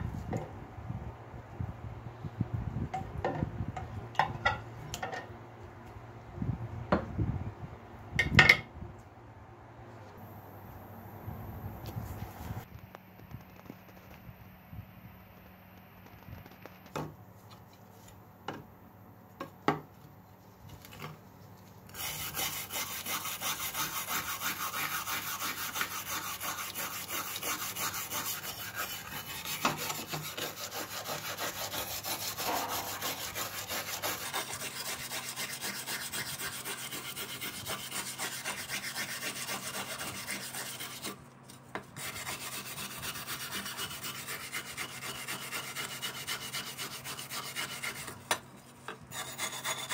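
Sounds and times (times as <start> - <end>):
wire brush scrubbing steel: 21.9 - 41.2, 42.0 - 48.4, 49.1 - 49.9.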